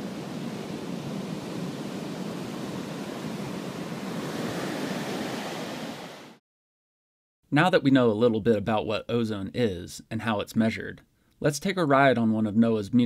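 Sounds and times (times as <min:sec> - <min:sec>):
waves breaking: 0:00.0 - 0:06.4.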